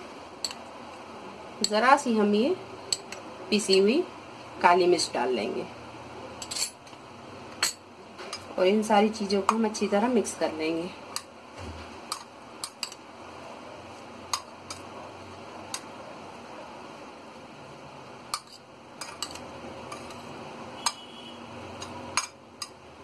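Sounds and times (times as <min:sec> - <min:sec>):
spoon stirring food: 0:00.4 - 0:01.0, 0:12.0 - 0:13.1, 0:13.8 - 0:16.0, 0:18.3 - 0:23.0.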